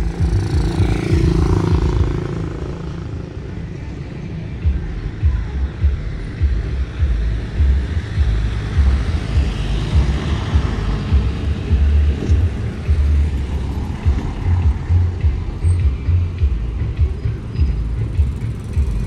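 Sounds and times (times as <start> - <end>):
low uneven traffic rumble: 0.0 - 19.0
vehicle passing: 6.7 - 19.0.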